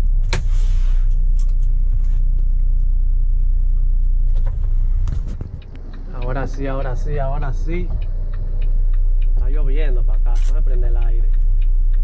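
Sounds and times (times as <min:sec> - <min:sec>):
diesel truck engine idling: 0:00.0 - 0:12.0
air brake click and hiss: 0:00.3 - 0:01.2.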